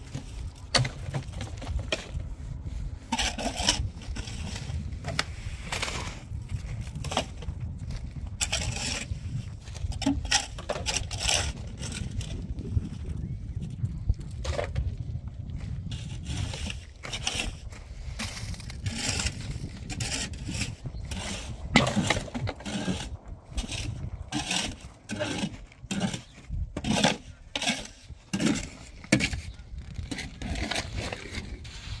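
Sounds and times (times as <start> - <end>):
shovel scraping wet concrete: 3.0 - 7.4, 8.4 - 12.4, 15.9 - 32.0.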